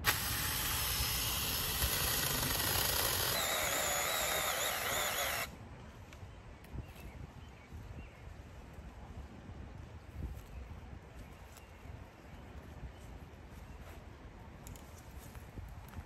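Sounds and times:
mini chainsaw cutting brush: 0:00.0 - 0:05.5
wavering whine: 0:00.0 - 0:05.5.

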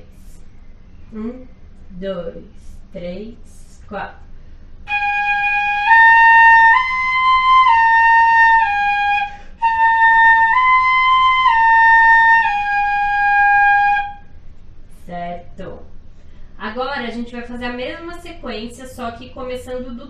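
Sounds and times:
breath: 0:04.3 - 0:04.8, 0:09.3 - 0:09.6, 0:16.1 - 0:16.6.

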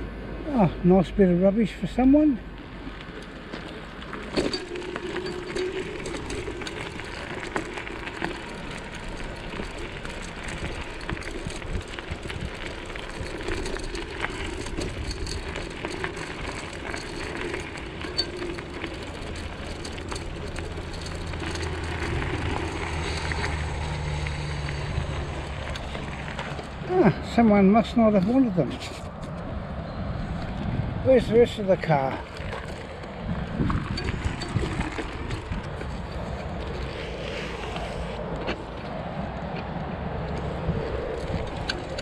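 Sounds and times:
bicycle tyres crunching on gravel: 0:01.8 - 0:42.0
small clicks and rattles: 0:02.9 - 0:26.8, 0:32.2 - 0:37.2, 0:40.2 - 0:42.0.

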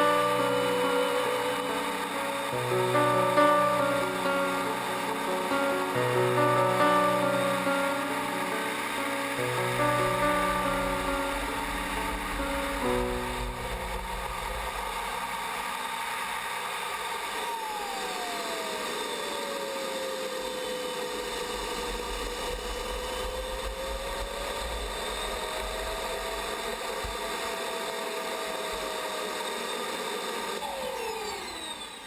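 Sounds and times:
steady rushing hiss: 0:00.0 - 0:17.8, 0:21.0 - 0:28.3
distant model airplane engine: 0:08.9 - 0:32.0.

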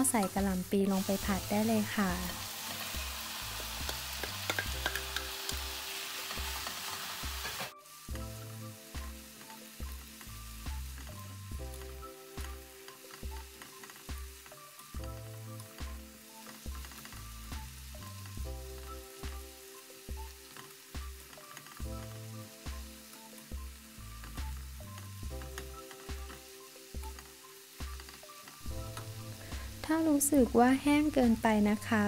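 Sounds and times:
food sizzling in a pan: 0:00.0 - 0:32.0
spatula scraping and tapping pan: 0:03.6 - 0:05.6, 0:06.6 - 0:07.8
background music with bass line: 0:08.1 - 0:13.5, 0:21.8 - 0:31.8.

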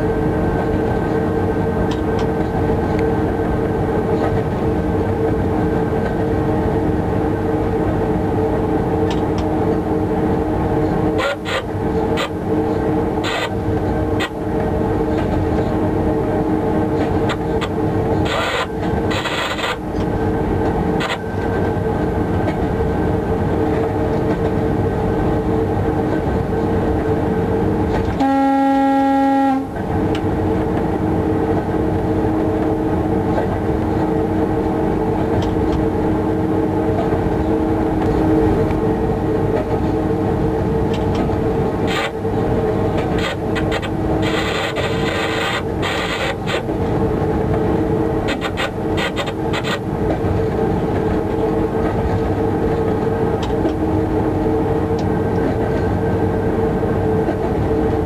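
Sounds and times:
locomotive equipment hum: 0:00.0 - 0:58.0
train rolling noise: 0:00.0 - 0:58.0
locomotive horn: 0:28.2 - 0:29.8.

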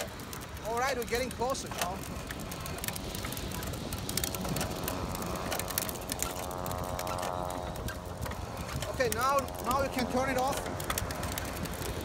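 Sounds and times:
fishing reel ticking and clicking: 0:00.0 - 0:12.0
steady whirring tone: 0:00.0 - 0:12.0.

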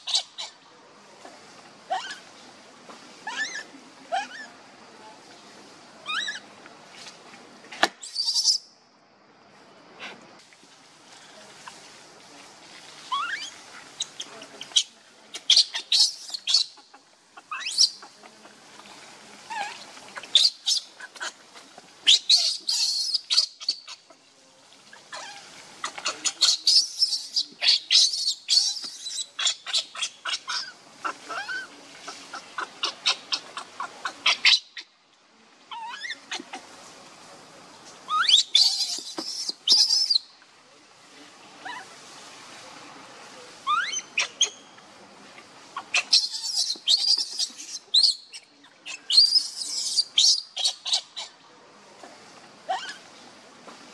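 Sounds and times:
infant monkey screaming: 0:00.0 - 0:00.6, 0:01.9 - 0:02.2, 0:03.2 - 0:04.5, 0:06.0 - 0:06.4, 0:07.9 - 0:08.6, 0:13.1 - 0:18.1, 0:19.5 - 0:21.4, 0:22.0 - 0:24.1, 0:25.1 - 0:34.9, 0:35.7 - 0:36.6, 0:38.1 - 0:40.2, 0:41.6 - 0:41.9, 0:43.6 - 0:44.6, 0:45.8 - 0:51.4, 0:52.7 - 0:53.0.

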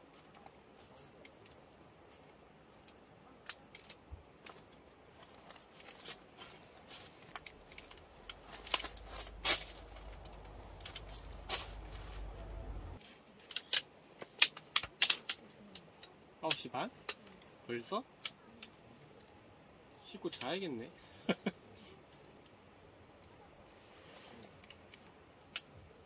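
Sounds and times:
fabric handling: 0:05.1 - 0:13.0
low rumble: 0:07.4 - 0:13.0.

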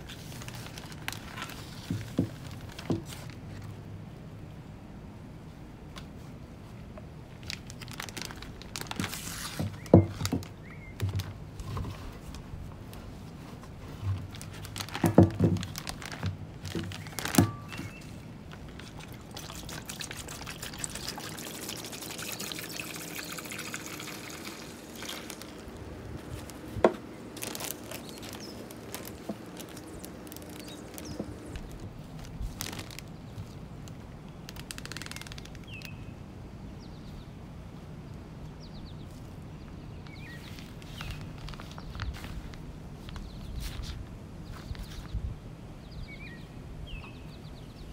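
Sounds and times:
liquid pouring and trickling: 0:18.8 - 0:25.7.

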